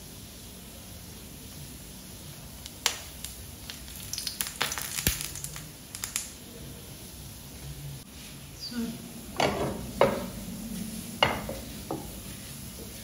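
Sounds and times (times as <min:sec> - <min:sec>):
sausages sizzling in oil: 0:00.0 - 0:13.0
oil spitting and crackling: 0:02.6 - 0:06.5.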